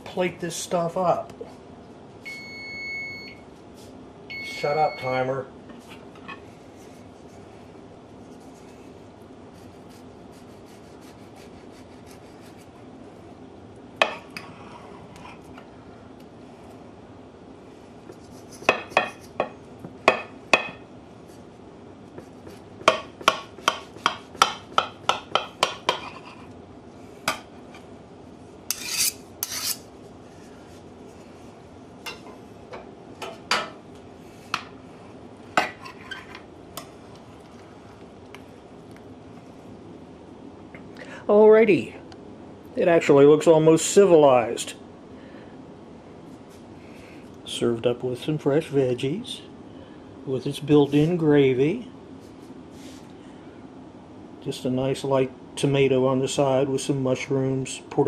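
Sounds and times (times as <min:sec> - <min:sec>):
knife rasping through crust: 0:09.5 - 0:12.8, 0:28.7 - 0:29.9.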